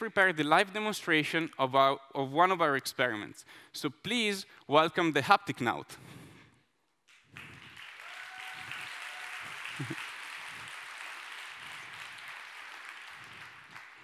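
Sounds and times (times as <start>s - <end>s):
audience applauding: 7.3s - 14.0s.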